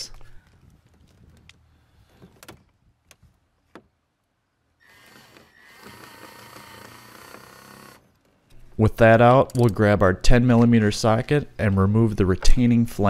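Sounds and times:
power window motor whining: 0:04.9 - 0:08.0.

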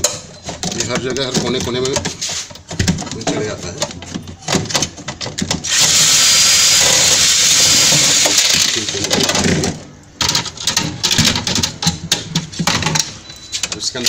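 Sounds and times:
clicks and plastic knocks: 0:00.0 - 0:05.6, 0:09.0 - 0:14.0
cordless drill spinning: 0:05.7 - 0:08.7.

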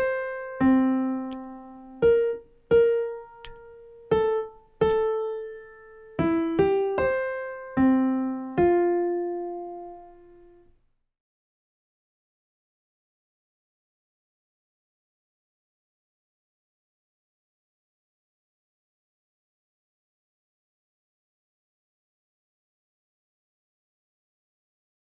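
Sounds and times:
slow digital piano melody: 0:00.0 - 0:10.7.

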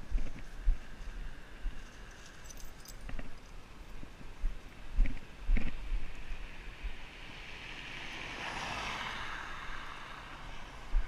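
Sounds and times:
tyres hissing on wet road: 0:06.5 - 0:10.8.

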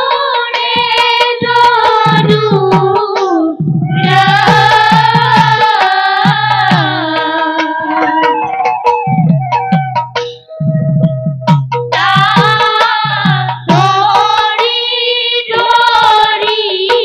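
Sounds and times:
women singing devotional song: 0:00.0 - 0:08.5, 0:11.9 - 0:17.0
low rhythmic beat with strikes: 0:00.0 - 0:17.0.

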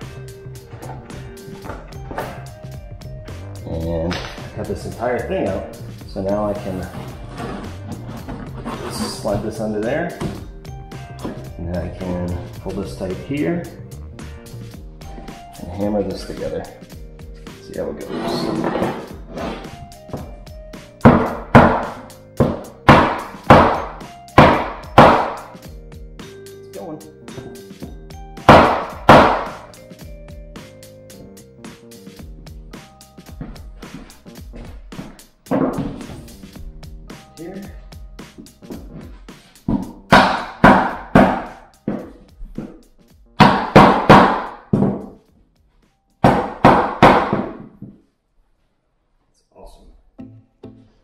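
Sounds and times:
hammer striking metal bar: 0:21.1 - 0:25.6, 0:28.4 - 0:29.7, 0:40.1 - 0:41.6, 0:43.4 - 0:44.6.

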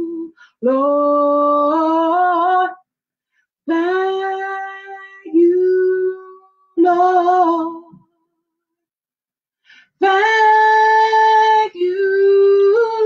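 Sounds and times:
woman singing unaccompanied: 0:00.0 - 0:02.8, 0:03.7 - 0:08.0, 0:10.0 - 0:13.0.

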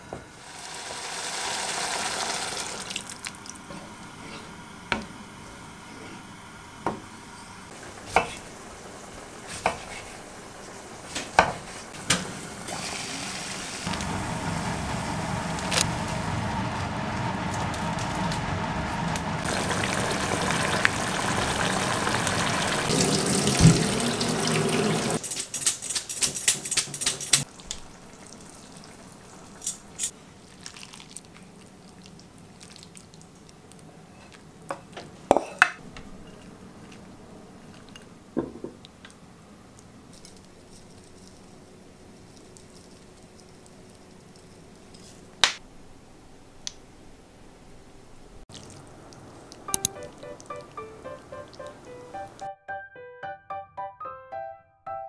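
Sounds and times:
tap running into a sink: 0:23.0 - 0:25.1
dishes clinking: 0:34.7 - 0:36.5.

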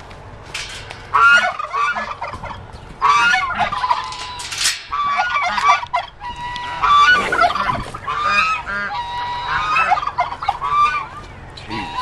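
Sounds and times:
poultry calling: 0:01.0 - 0:12.0.

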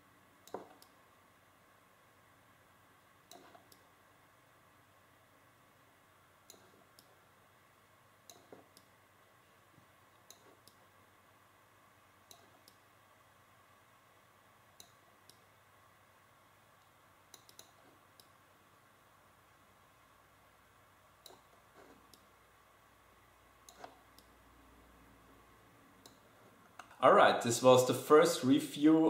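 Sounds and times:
computer mouse button clicks: 0:17.3 - 0:18.3.

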